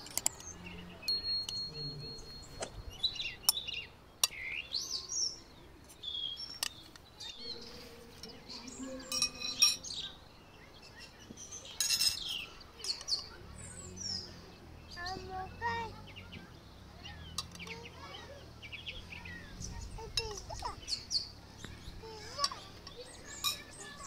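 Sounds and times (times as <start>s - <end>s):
small birds chirping: 0.0s - 24.0s
spoon clinking on dishes: 8.7s - 10.1s.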